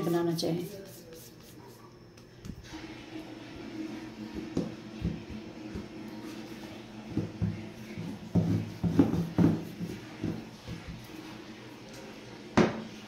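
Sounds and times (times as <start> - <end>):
rolling pin knocking on board: 7.1 - 11.0.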